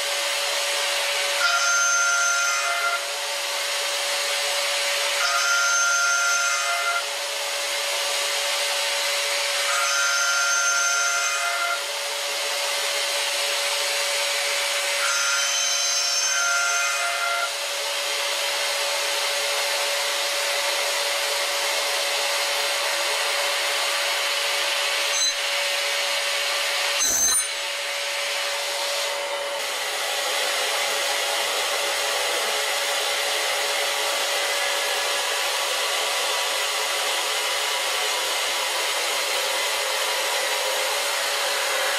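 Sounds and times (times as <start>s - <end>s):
high ringing cutting tones: 1.4s - 3.1s, 5.2s - 7.0s, 9.8s - 11.7s, 15.0s - 17.4s, 25.0s - 25.6s, 27.0s - 27.6s.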